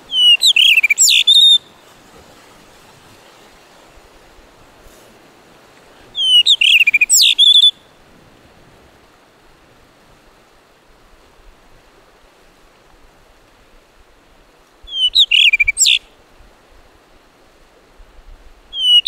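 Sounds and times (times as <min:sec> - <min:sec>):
faint surf hiss: 0:00.0 - 0:19.0
thrush singing fluting whistles: 0:00.1 - 0:01.7, 0:06.2 - 0:07.9, 0:14.9 - 0:16.0, 0:18.7 - 0:19.0.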